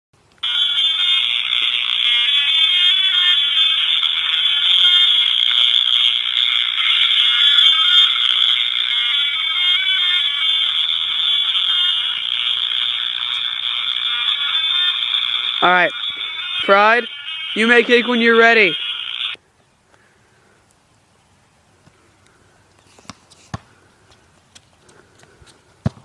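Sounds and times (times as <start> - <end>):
frogs calling: 0.4 - 19.4.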